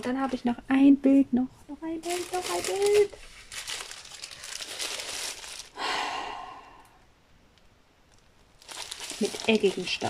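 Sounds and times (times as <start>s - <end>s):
plastic mailer rustling and crinkling: 2.0s - 5.8s, 8.5s - 10.0s.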